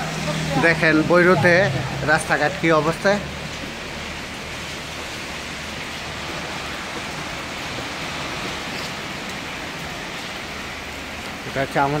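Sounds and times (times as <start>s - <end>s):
heavy rain and hail hissing: 0.0s - 12.0s.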